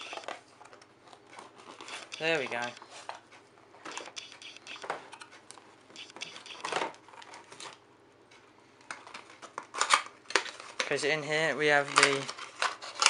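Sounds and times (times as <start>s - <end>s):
contents shifting in box: 11.7s - 13.0s.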